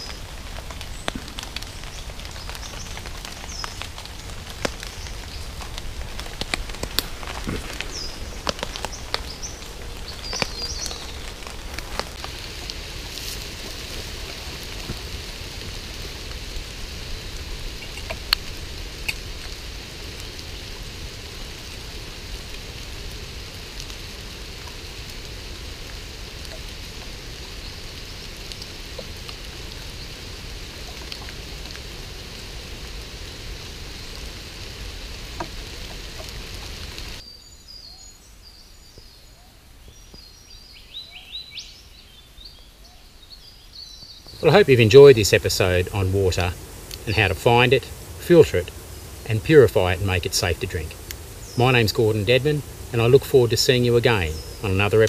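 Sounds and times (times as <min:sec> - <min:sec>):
light rain hiss: 0:00.0 - 0:55.0
bird chirps: 0:07.6 - 0:11.5, 0:37.2 - 0:44.5, 0:53.9 - 0:55.0.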